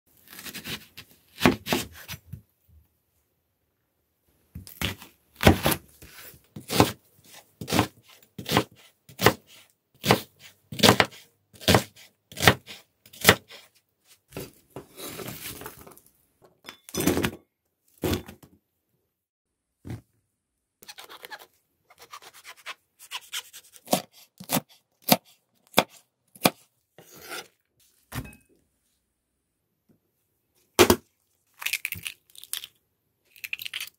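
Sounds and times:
knife cutting onion on wooden board: 0:00.2 - 0:02.4, 0:04.6 - 0:15.3, 0:20.8 - 0:28.4.

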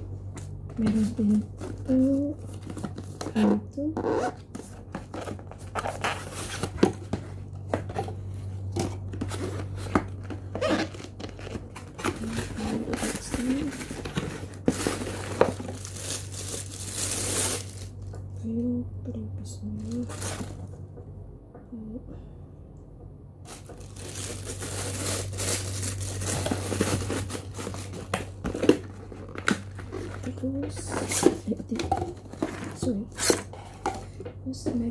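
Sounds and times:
low steady hum: 0:00.0 - 0:34.9
cardboard box rustling and scraping: 0:04.3 - 0:17.8, 0:20.0 - 0:20.7, 0:23.5 - 0:34.2
plastic bag crinkling: 0:09.1 - 0:18.3, 0:19.8 - 0:20.8, 0:23.4 - 0:34.2.

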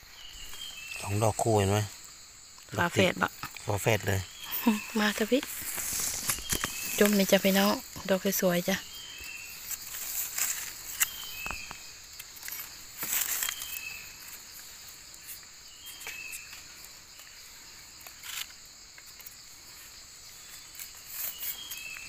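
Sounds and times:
crickets trilling: 0:00.0 - 0:22.0
descending insect chirp: 0:00.0 - 0:22.0
rustles and taps in leaf litter: 0:05.3 - 0:08.1, 0:09.2 - 0:14.3.

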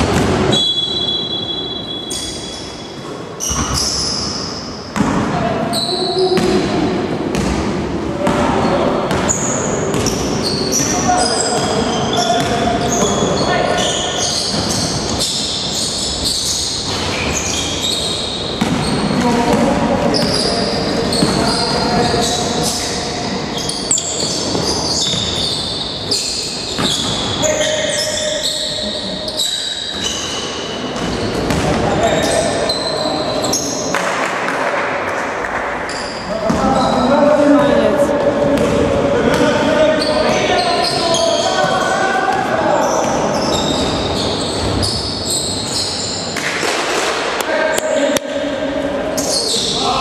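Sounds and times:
shoes squeaking on gym floor: 0:00.5 - 0:05.1, 0:05.7 - 0:06.6, 0:08.6 - 0:34.0, 0:39.4 - 0:46.4, 0:49.1 - 0:50.0
basketball dribbling: 0:18.6 - 0:22.8
ball bouncing on floor: 0:38.2 - 0:39.5.

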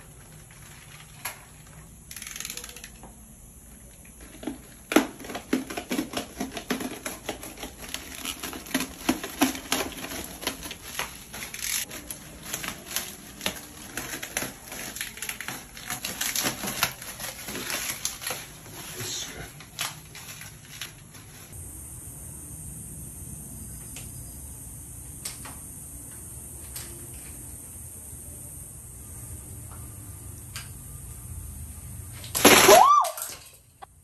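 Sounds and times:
bubble wrap crinkling: 0:04.2 - 0:21.6.

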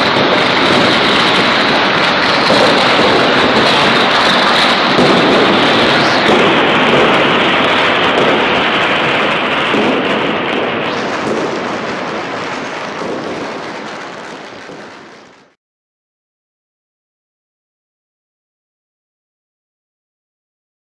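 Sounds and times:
firecrackers crackling: 0:00.0 - 0:15.6.

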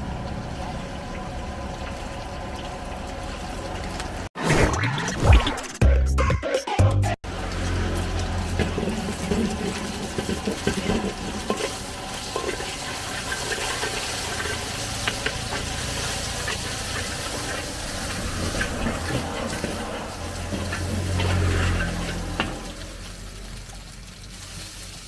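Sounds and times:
food sizzling in a wok: 0:07.2 - 0:25.0
gas burner running: 0:07.3 - 0:25.0
metal spatula scraping wok: 0:07.5 - 0:23.4.

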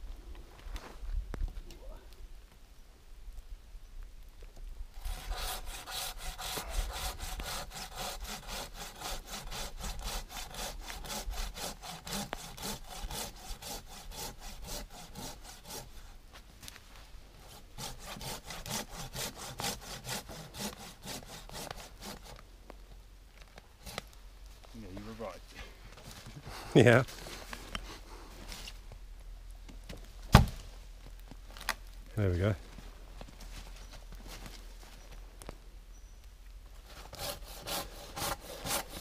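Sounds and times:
pull saw sawing through log: 0:05.0 - 0:16.2, 0:17.4 - 0:22.4, 0:36.9 - 0:39.0.

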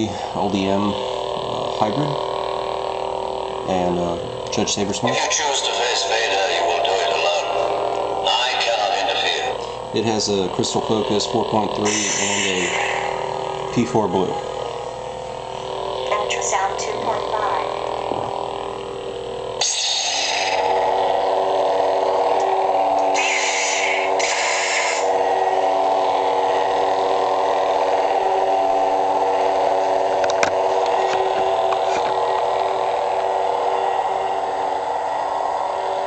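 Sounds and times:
lightsaber humming: 0:00.0 - 0:36.0
lightsaber igniting hiss: 0:19.6 - 0:20.6, 0:23.1 - 0:25.1.

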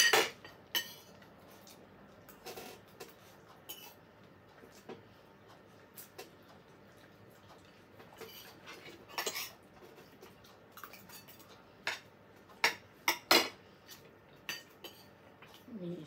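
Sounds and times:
fork clinking and scraping on plate: 0:00.0 - 0:01.2, 0:02.4 - 0:04.0, 0:08.2 - 0:09.6, 0:10.7 - 0:15.1.

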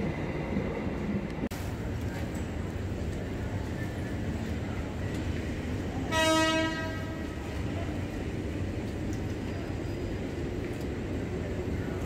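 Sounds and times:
low rumble of approaching train: 0:00.0 - 0:12.0
train horn blast: 0:06.0 - 0:07.4.

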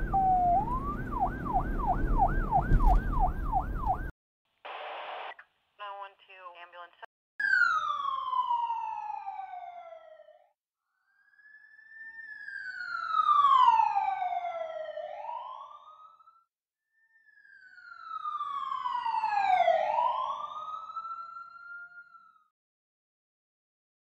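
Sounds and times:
emergency siren wailing: 0:00.0 - 0:04.1, 0:07.4 - 0:10.6, 0:11.2 - 0:16.5, 0:17.2 - 0:22.5.

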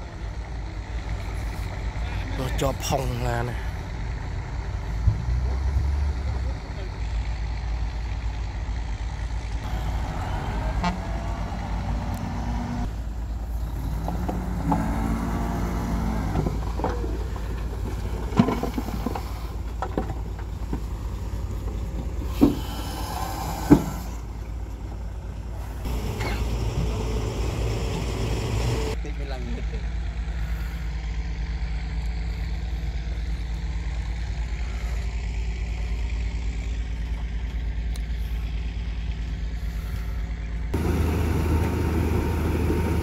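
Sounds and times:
diesel truck engine under load: 0:00.0 - 0:43.0
soil and rock spilling: 0:13.0 - 0:24.0.

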